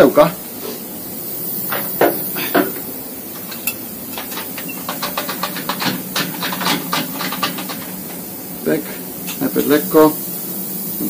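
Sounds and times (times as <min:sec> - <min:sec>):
machine shop hiss and hum: 0:00.0 - 0:11.0
rapid light clicks and taps: 0:03.4 - 0:08.2.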